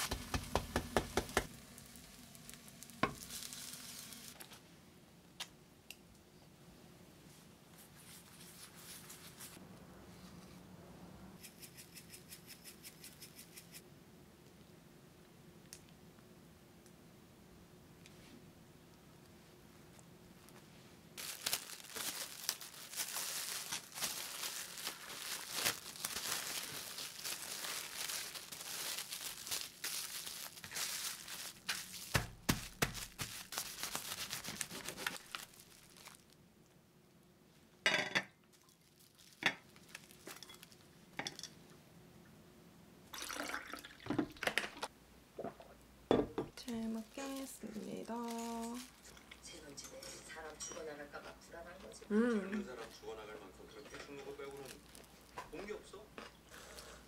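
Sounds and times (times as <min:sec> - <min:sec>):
wrapping paper crinkling: 0:00.0 - 0:04.6, 0:08.0 - 0:09.6, 0:21.2 - 0:36.4, 0:38.5 - 0:40.9, 0:46.6 - 0:49.3, 0:54.3 - 0:55.4.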